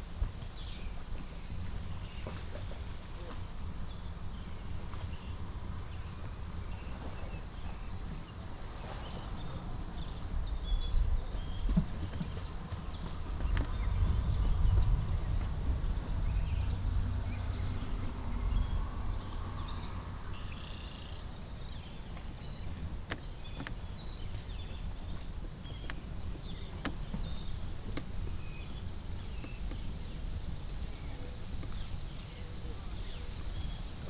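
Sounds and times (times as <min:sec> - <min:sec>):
steady low rumble: 0:00.0 - 0:34.0.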